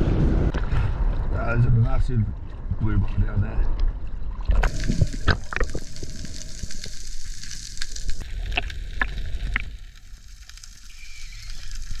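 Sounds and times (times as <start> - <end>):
snapping shrimp underwater: 4.5 - 7.0.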